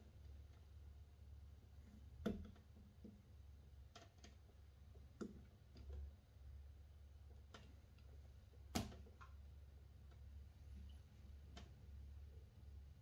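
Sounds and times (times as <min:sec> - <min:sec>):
low steady hum: 0:00.0 - 0:13.0
faint irregular clicks: 0:01.8 - 0:06.2, 0:07.2 - 0:12.6.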